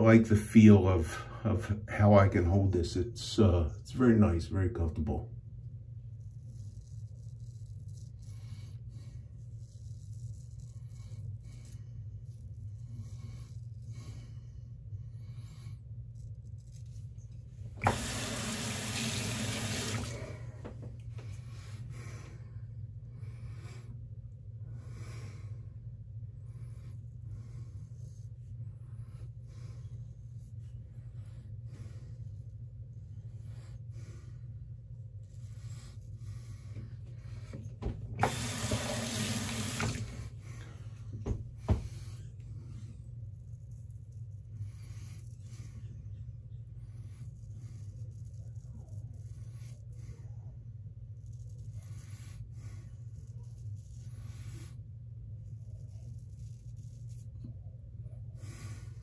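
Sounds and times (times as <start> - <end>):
razor scraping stubble: 6.0 - 14.3
tap water running into sink: 17.8 - 20.4, 38.2 - 40.2.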